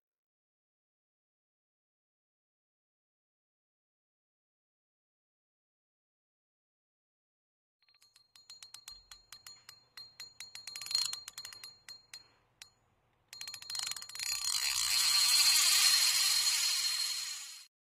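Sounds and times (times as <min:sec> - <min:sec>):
rapid ratchet-like ticking: 0:07.9 - 0:17.7.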